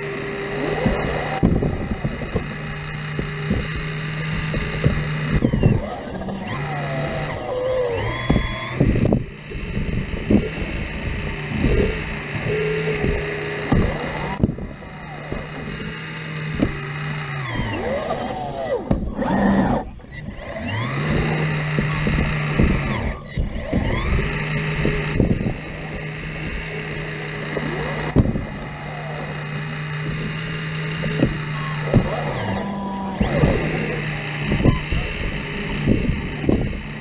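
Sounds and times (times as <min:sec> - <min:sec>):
excavator engine hum: 0:00.0 - 0:37.0
hydraulic whines: 0:00.0 - 0:37.0
machine knocks: 0:08.2 - 0:17.8, 0:20.7 - 0:37.0.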